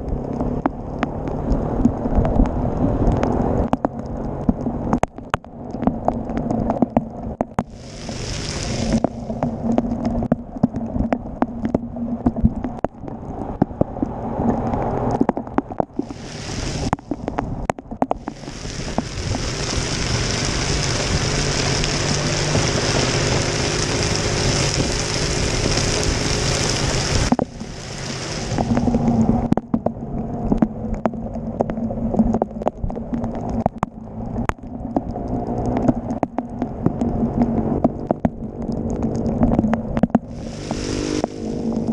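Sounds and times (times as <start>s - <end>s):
wind and rain on microphone: 0.0s - 41.9s
hiss of rain and water spray: 7.6s - 10.0s, 15.9s - 29.6s, 40.0s - 41.9s.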